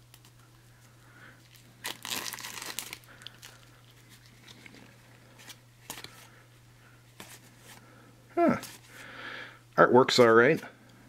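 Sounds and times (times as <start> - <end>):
plastic shrink-wrap crinkling: 1.4 - 6.1.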